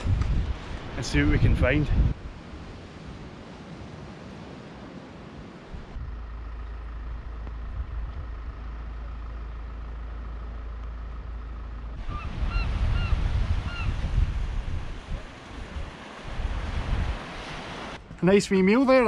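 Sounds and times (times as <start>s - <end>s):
wind rumbling on microphone: 0.0s - 9.2s, 11.7s - 18.2s
bird calling: 11.9s - 14.0s.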